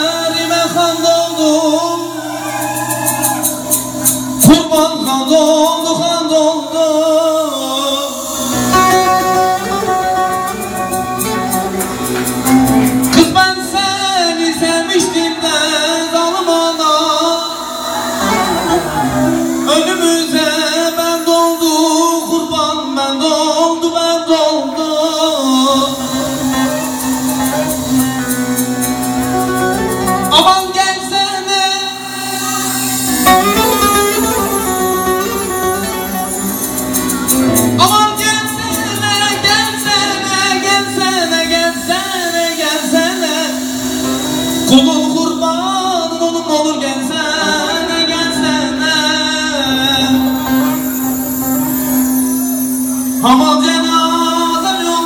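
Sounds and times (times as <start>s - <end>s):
folk band playing slow instrumental: 0.0s - 55.0s
ornamented wavering vocal line: 13.5s - 23.8s.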